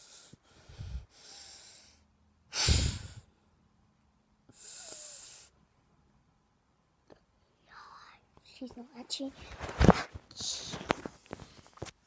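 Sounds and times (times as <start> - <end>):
person breathing out heavily: 0.0 - 3.4, 4.5 - 5.6.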